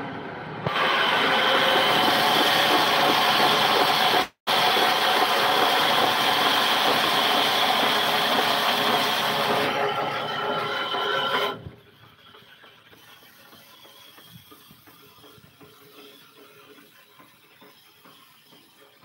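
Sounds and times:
frame saw cutting a log: 0.7 - 11.7.

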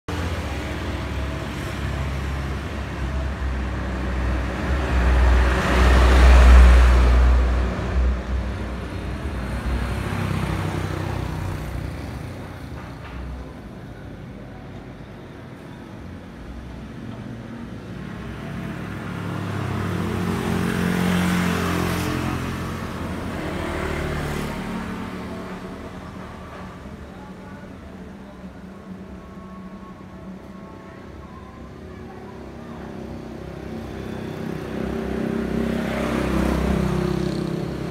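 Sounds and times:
steady traffic noise: 0.1 - 37.9
vehicles passing: 0.1 - 37.9.

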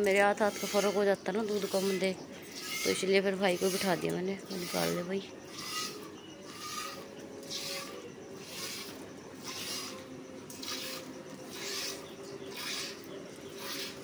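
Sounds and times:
milk squirting into pail: 10.5 - 12.0.

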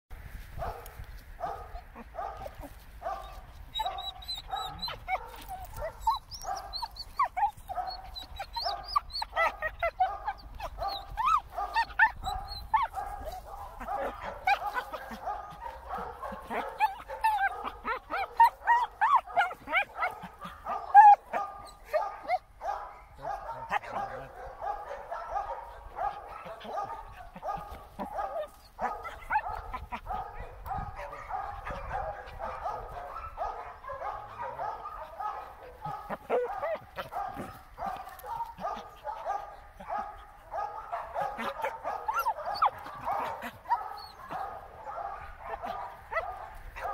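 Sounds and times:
dog whining and yipping: 3.2 - 13.4, 16.5 - 22.4, 41.4 - 44.3.

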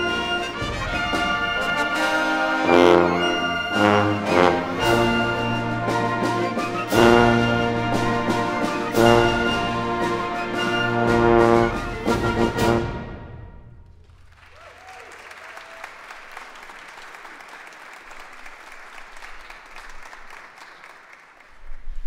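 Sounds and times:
concert band playing chords: 0.0 - 13.1
audience applause: 14.0 - 21.9.

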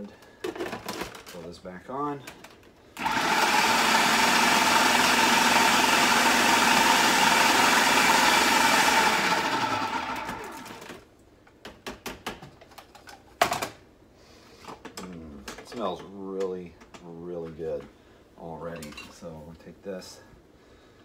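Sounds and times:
food processor running: 3.0 - 11.0.

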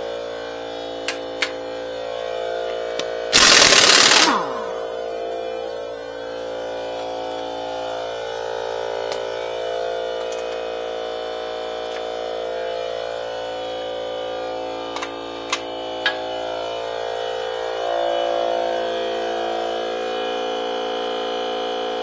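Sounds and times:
air compressor motor running: 0.0 - 22.0
sharp clicks: 3.4 - 4.7.

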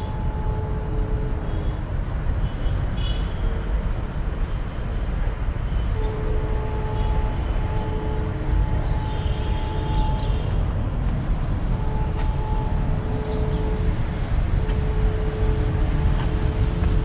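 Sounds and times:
low outdoor rumble: 5.8 - 17.0.

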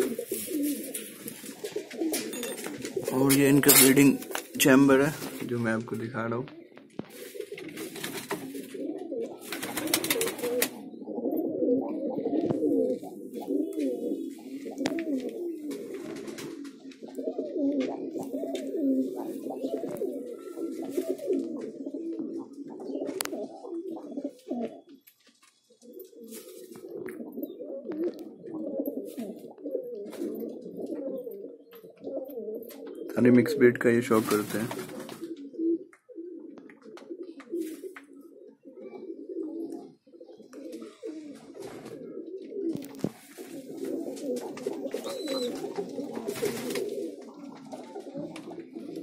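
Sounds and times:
pigeons cooing: 0.0 - 49.0
wings flapping: 6.8 - 10.8, 12.4 - 16.9, 17.8 - 21.7, 34.1 - 35.4, 40.8 - 42.0, 42.7 - 49.0.

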